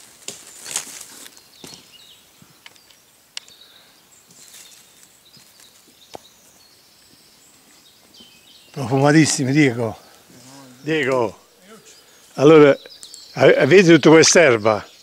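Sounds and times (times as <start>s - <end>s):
twigs snapping: 0.0s - 1.9s
leaf litter rustling: 0.0s - 2.0s, 4.3s - 5.9s
faint bird calls: 0.6s - 13.9s.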